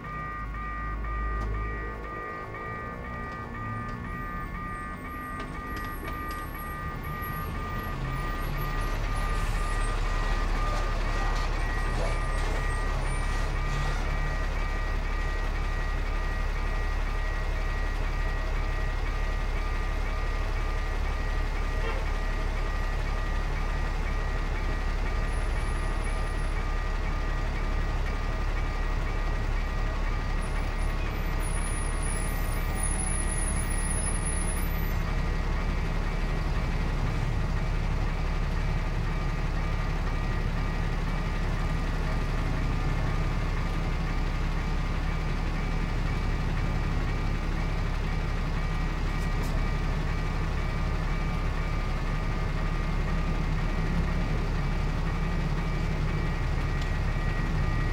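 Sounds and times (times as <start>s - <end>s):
level crossing warning beeps: 0.0s - 57.9s
truck engine idling: 0.0s - 57.9s.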